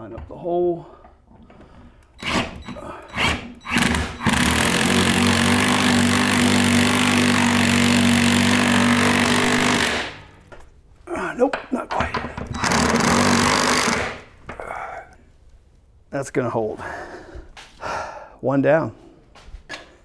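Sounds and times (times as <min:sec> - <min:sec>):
cordless drill driving a bolt: 0:02.2 - 0:10.2, 0:12.6 - 0:14.2.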